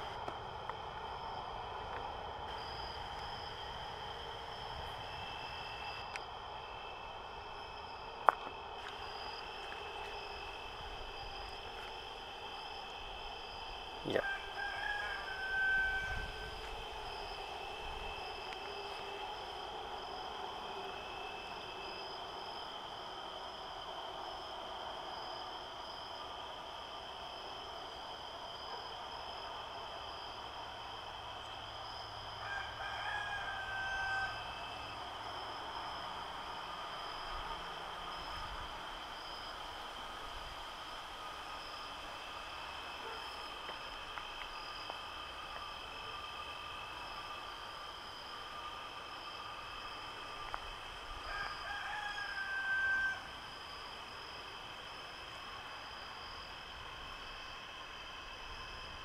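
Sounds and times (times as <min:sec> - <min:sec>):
high-pitched background drone: 0:00.0 - 0:59.0
night insects trilling: 0:00.0 - 0:59.0
rooster crowing: 0:14.0 - 0:19.3, 0:31.9 - 0:35.5, 0:50.8 - 0:53.7.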